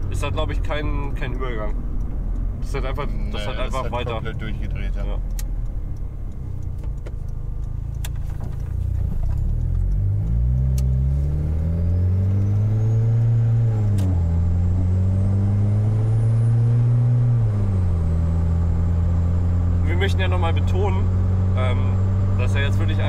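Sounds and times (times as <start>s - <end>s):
gearbox upshifts: 0.0s - 15.4s
car engine accelerating: 0.0s - 23.0s.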